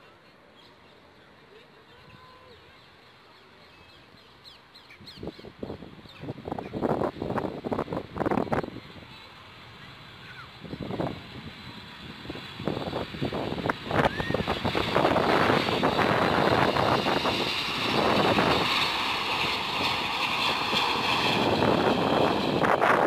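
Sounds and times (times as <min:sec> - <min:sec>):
wind buffeting microphone: 0:05.0 - 0:09.2, 0:10.3 - 0:23.0
high engine whine: 0:05.6 - 0:23.0
jet engines roaring: 0:06.4 - 0:23.0.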